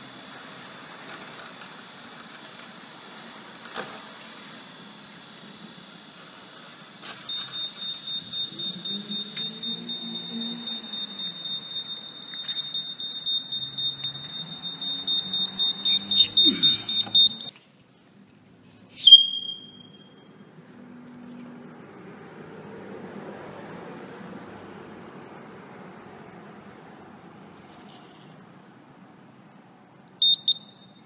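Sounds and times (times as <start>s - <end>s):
high-pitched electronic beep: 7.3s - 17.5s, 30.2s - 31.0s.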